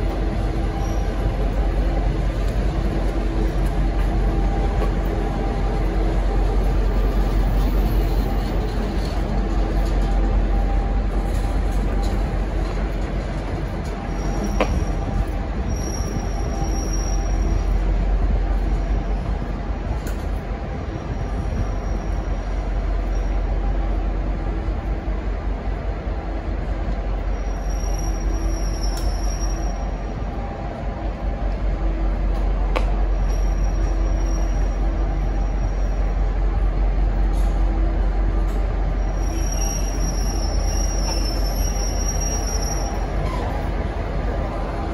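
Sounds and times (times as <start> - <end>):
low train rumble: 0.0 - 44.9
faint high squeal: 14.0 - 17.7, 27.3 - 30.2, 33.1 - 36.2, 38.9 - 43.6.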